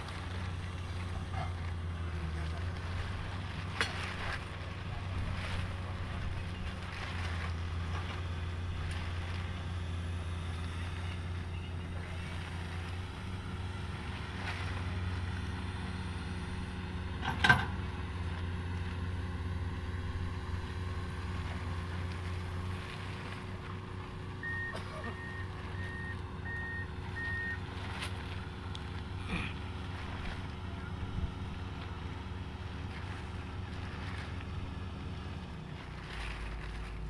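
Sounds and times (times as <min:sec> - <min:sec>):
diesel engine running: 0:00.0 - 0:37.0.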